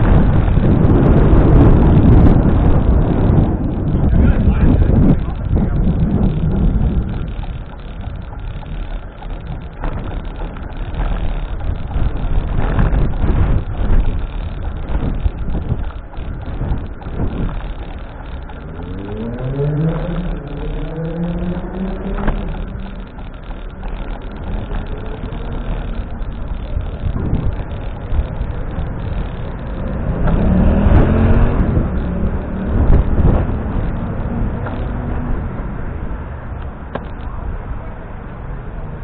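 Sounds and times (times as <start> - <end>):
road traffic rumble: 0.0 - 39.0
vehicle engine accelerating: 0.0 - 39.0.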